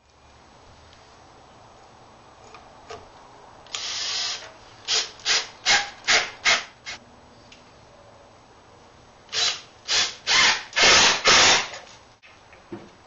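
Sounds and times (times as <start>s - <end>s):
impact driver driving screws: 9.4s - 11.8s.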